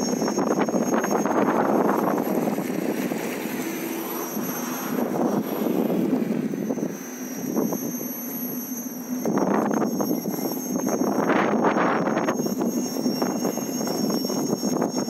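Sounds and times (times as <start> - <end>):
electric unicycle rolling rumble: 0.0 - 15.0
thin steady high whine: 0.0 - 15.0.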